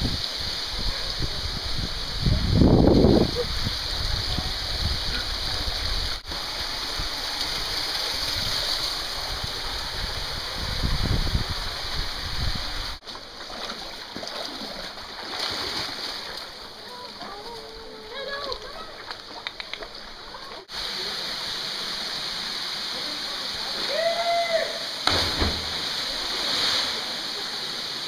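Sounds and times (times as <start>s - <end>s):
creek rushing: 0.0s - 28.0s.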